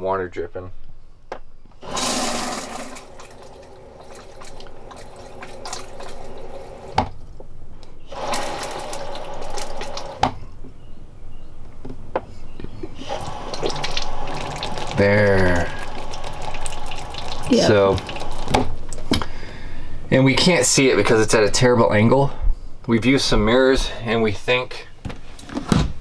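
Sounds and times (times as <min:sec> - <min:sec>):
toilet dripping: 0:01.8 - 0:07.0, 0:08.1 - 0:10.2, 0:13.0 - 0:19.1
toilet flush water rushing: 0:01.8 - 0:07.0, 0:08.1 - 0:10.2, 0:13.0 - 0:18.7.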